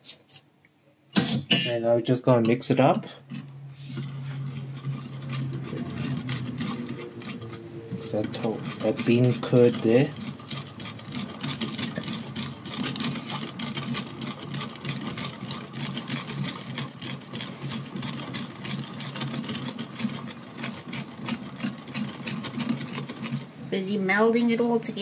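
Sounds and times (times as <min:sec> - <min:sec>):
utensil scraping bowl: 0:01.4 - 0:25.0
low hum: 0:03.2 - 0:09.4.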